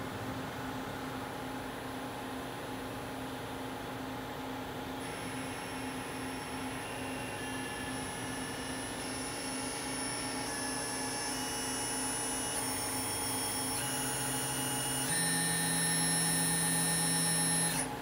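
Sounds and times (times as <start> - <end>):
steady machine hum: 0.0 - 18.0
spindle high electric whine: 5.0 - 18.0.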